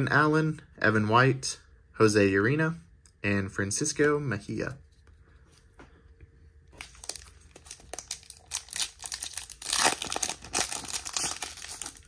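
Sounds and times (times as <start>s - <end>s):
foil wrapper crinkling and tearing: 6.8s - 12.0s.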